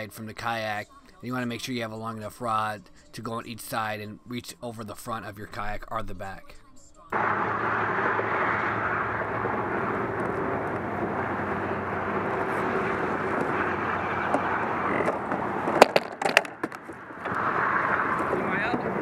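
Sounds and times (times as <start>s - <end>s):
water rushing: 7.2s - 15.9s
wind rushing: 7.3s - 19.0s.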